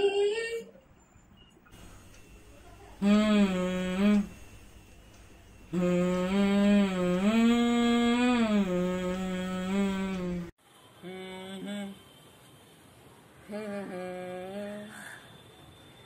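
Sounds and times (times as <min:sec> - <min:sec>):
boy humming a slow tune: 0:02.8 - 0:04.6, 0:05.7 - 0:12.0, 0:13.5 - 0:15.0.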